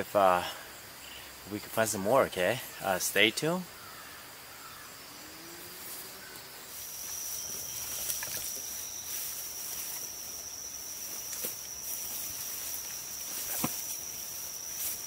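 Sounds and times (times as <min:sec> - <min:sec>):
insects droning: 0:00.0 - 0:15.0
footsteps through grass: 0:05.8 - 0:15.0.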